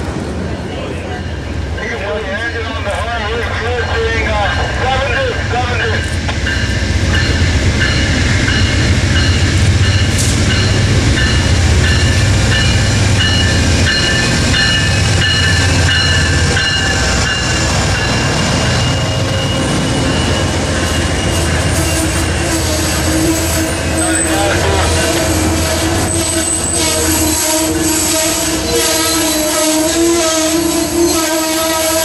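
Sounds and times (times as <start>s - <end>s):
diesel locomotive engine drone: 0.0s - 32.0s
train wheels rumbling and clattering: 0.0s - 32.0s
locomotive bell ringing: 1.0s - 22.5s.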